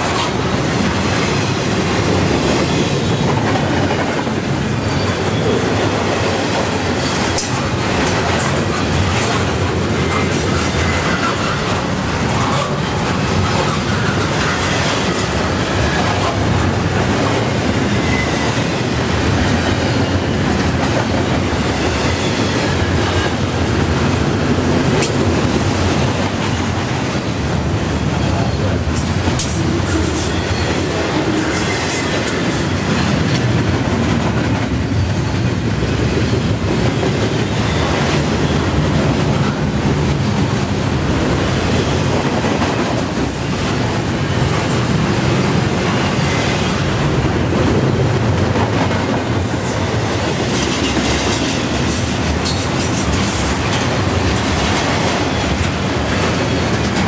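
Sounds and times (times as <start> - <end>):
steel wheels rolling on rail: 0.0 - 57.0
high-pitched wheel squeal: 18.0 - 18.6, 31.4 - 32.8.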